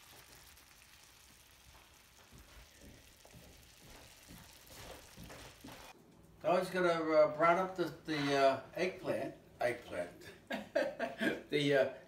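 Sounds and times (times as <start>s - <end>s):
mushrooms sizzling in a pan: 0.0s - 6.0s.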